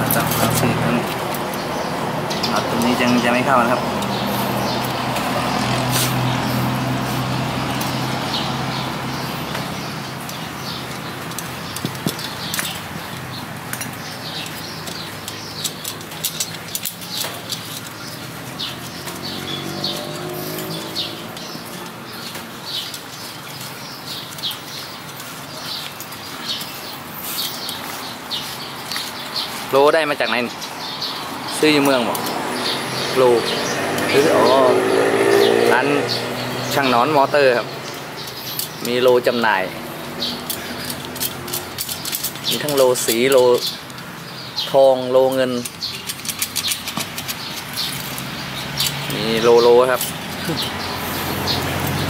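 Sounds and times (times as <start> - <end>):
vehicle engine humming: 0.0 - 52.0
wire spokes clicking: 0.0 - 52.0
small bird chirping: 0.1 - 52.0.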